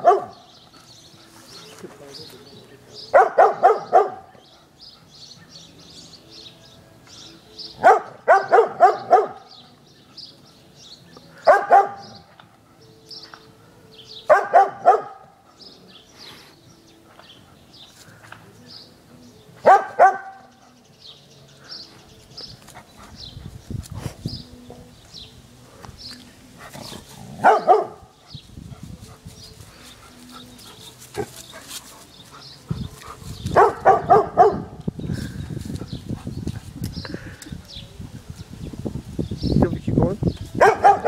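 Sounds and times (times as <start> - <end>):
dog barking: 0.0 - 0.5, 3.1 - 4.4, 7.8 - 9.5, 11.4 - 12.3, 14.3 - 15.4, 19.6 - 20.6, 27.4 - 28.1, 33.5 - 34.8, 40.6 - 41.0.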